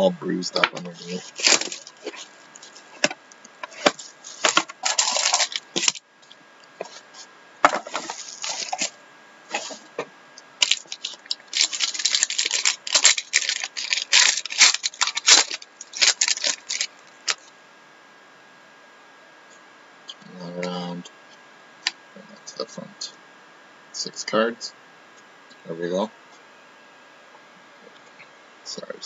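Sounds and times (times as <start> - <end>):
plastic shrink wrap crinkling: 0.8 - 6.0, 7.8 - 9.9, 10.6 - 17.5
cardboard packaging handled: 0.9 - 6.0, 7.7 - 8.9, 10.6 - 17.4.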